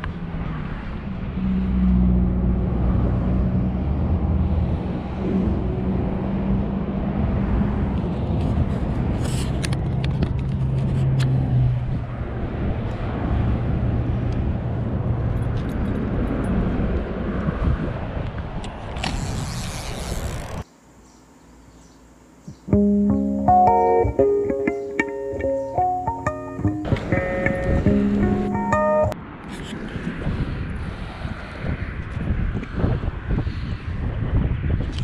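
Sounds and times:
engine humming: 22.7 - 29.2.

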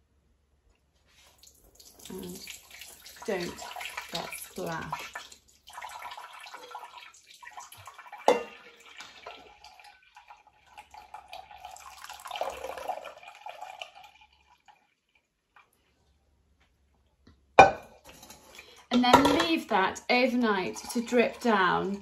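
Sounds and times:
liquid pouring and dripping: 1.1 - 16.2, 20.6 - 22.0.

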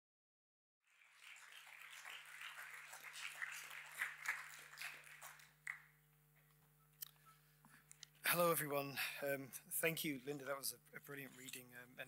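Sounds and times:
audience applauding: 0.9 - 6.0.

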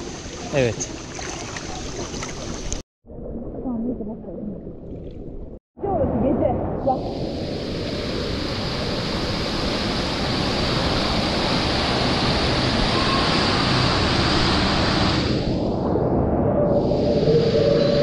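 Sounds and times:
whirlpool jets churning water: 6.9 - 15.7.

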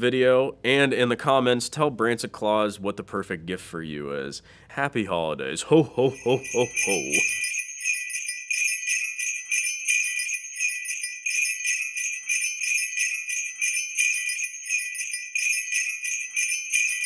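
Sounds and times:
sleigh bells shaken: 5.9 - 17.0.

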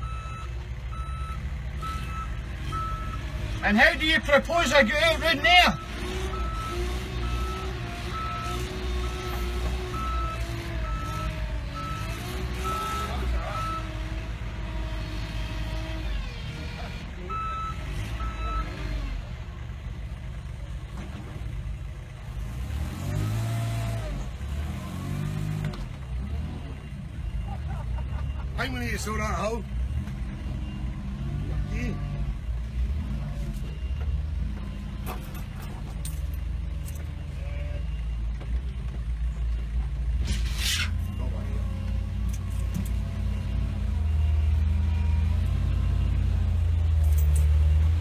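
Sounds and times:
reversing alarm beeps: 0.0 - 3.2, 5.7 - 14.0, 17.3 - 18.8, 32.4 - 35.4, 41.0 - 46.3
dumper engine rumbling: 0.0 - 48.0.

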